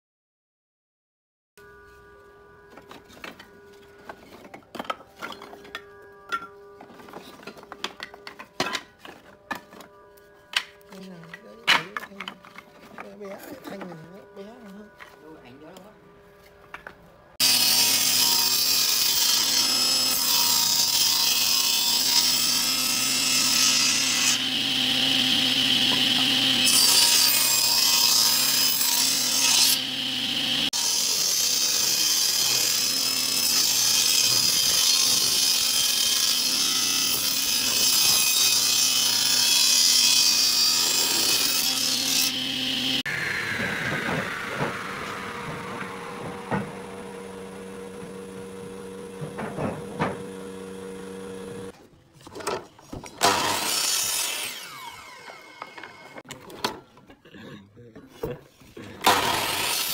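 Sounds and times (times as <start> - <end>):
table saw cutting wood: 17.4 - 51.8, 53.0 - 56.3, 59.0 - 59.9
saw blade whine winding down: 24.3 - 27.7, 40.7 - 49.5, 53.2 - 56.2.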